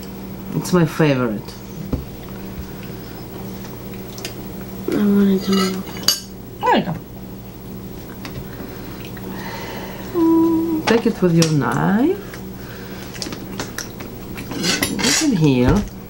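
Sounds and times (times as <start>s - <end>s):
faint steady hum: 0.0s - 16.0s
person humming: 9.5s - 10.9s
cutlery clinking on plates: 14.5s - 15.4s.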